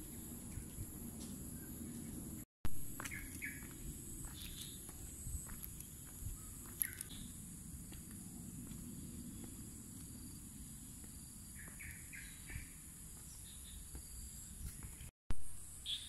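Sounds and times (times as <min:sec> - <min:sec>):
birds chirping: 0:03.0 - 0:15.1.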